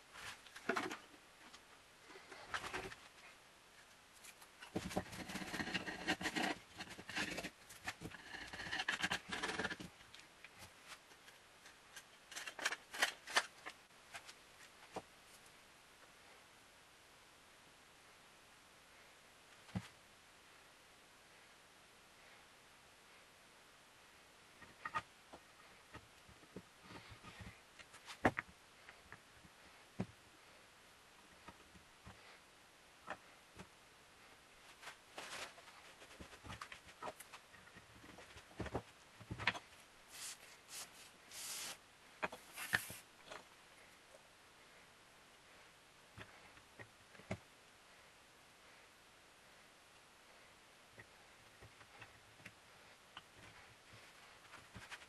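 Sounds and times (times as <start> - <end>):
blade scraping wood: 5.0 - 9.8
brushing over paper: 40.1 - 41.8, 42.4 - 43.1
rubbing scrape: 40.1 - 41.8, 42.4 - 43.0.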